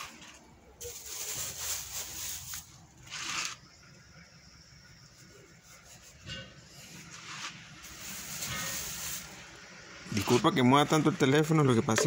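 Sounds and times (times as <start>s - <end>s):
rustling and scraping: 0.0s - 3.8s, 5.1s - 10.6s.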